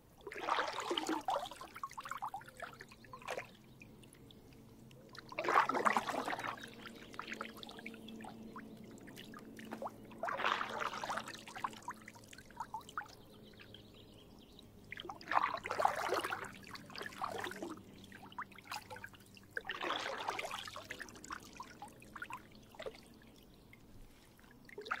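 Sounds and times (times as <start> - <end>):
kayak paddle splashing: 0.2 - 3.6, 5.1 - 12.0, 14.9 - 21.8.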